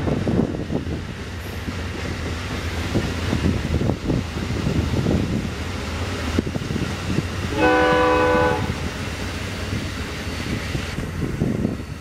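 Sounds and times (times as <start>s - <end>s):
train cars rumbling past: 0.0s - 12.0s
train horn blast: 7.5s - 8.9s.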